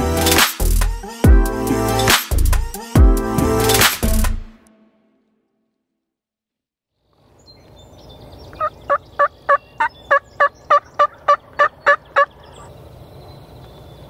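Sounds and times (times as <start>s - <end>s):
faint songbirds calling: 7.1s - 14.0s
turkey yelping: 8.5s - 12.7s.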